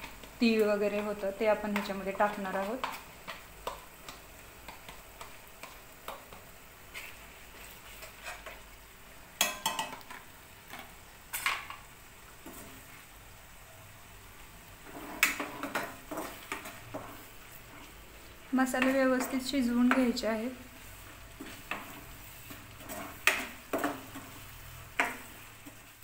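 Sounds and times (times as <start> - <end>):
paste sizzling in oil: 0.0 - 26.0
spatula scraping pan: 0.9 - 8.8, 14.8 - 26.0.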